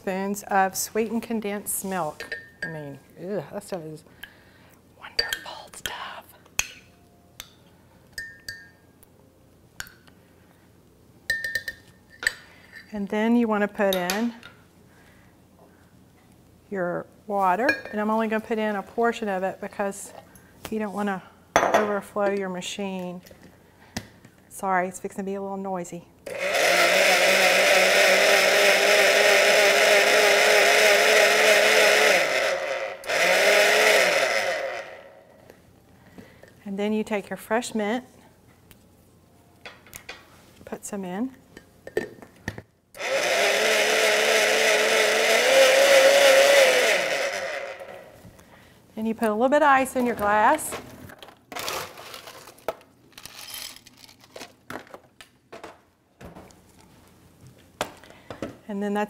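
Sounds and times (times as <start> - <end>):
blender motor whine: 26.3 - 35.3, 43.0 - 48.2
rustling and crinkling: 50.8 - 55.1.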